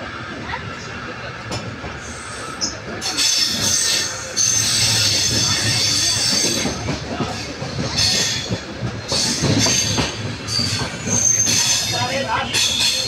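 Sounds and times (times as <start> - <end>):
train wheels rumbling on rail: 0.0 - 13.0
high wheel squeal: 2.0 - 6.8, 9.1 - 13.0.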